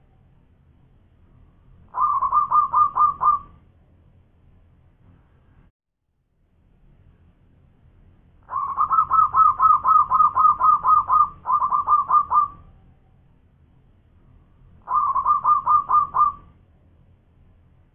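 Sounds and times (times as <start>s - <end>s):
dove staccato cooing: 1.9s - 3.6s, 8.5s - 12.6s, 14.8s - 16.5s.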